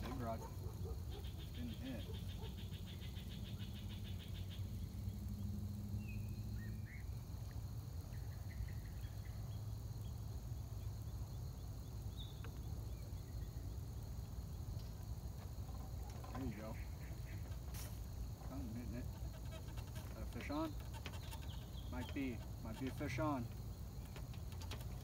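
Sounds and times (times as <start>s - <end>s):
bird chirps: 18.5s - 24.3s.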